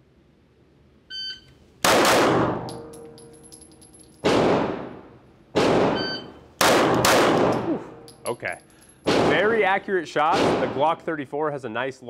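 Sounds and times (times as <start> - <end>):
shot timer beep: 1.1 - 1.5, 6.0 - 6.4
pistol shots echoing indoors: 1.8 - 8.2, 9.0 - 9.7, 10.3 - 10.9.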